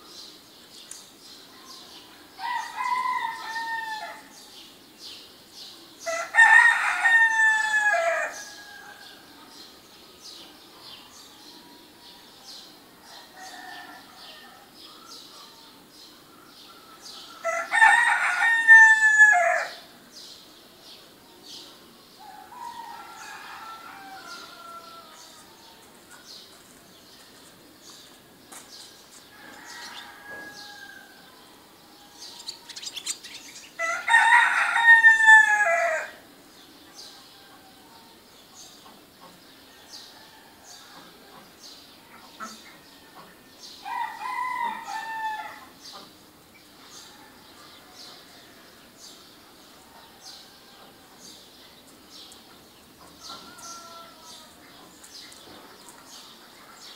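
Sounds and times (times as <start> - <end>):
small birds chirping: 0.0 - 6.2, 19.6 - 34.8, 36.6 - 56.9
rooster crowing: 2.4 - 4.3, 6.1 - 9.1, 17.4 - 19.8, 22.2 - 25.4, 29.3 - 31.3, 33.8 - 36.2, 43.8 - 45.7, 53.4 - 54.6.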